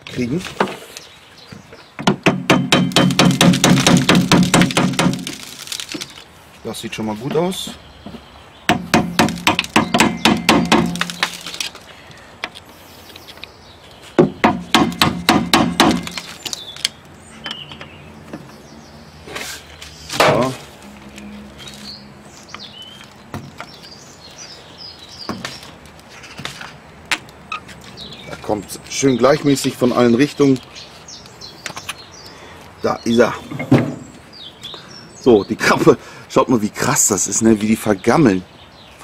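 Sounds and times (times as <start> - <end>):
hammer tapping on metal: 2.0 - 5.2.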